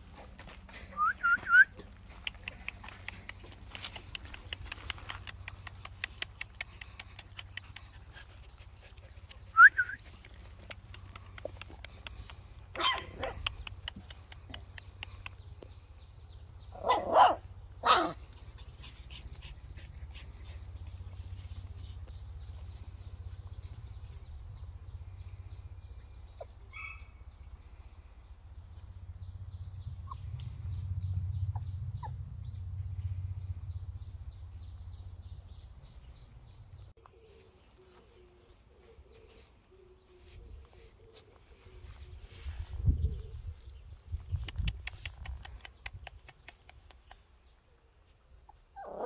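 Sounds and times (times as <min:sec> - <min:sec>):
puppy barking: 0:12.8 - 0:13.5, 0:16.8 - 0:18.2.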